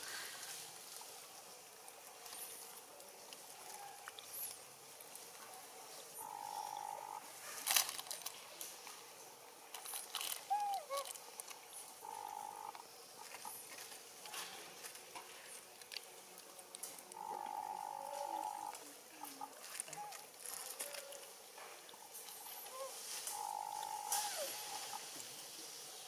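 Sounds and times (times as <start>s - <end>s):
buzzing animal call: 6.2s - 7.3s, 12.0s - 13.7s, 17.2s - 21.2s, 22.3s - 25.1s.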